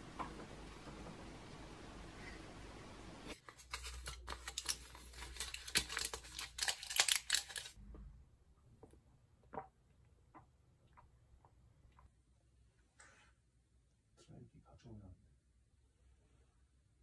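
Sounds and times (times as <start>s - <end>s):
faint room hiss: 0.0s - 17.0s
foil blister pack crackling: 3.7s - 7.8s.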